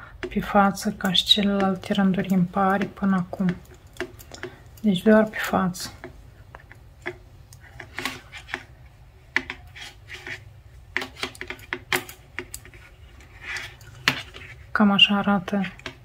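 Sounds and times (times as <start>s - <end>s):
metal knitting needles clicking: 0.2s - 8.8s, 11.0s - 12.9s.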